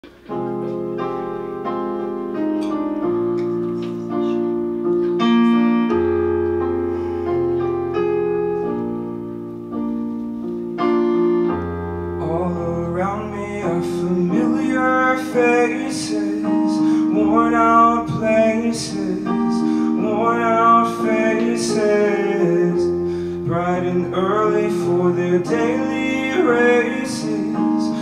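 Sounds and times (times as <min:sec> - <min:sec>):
acoustic piano chords: 0:00.0 - 0:28.0
man singing: 0:12.2 - 0:28.0.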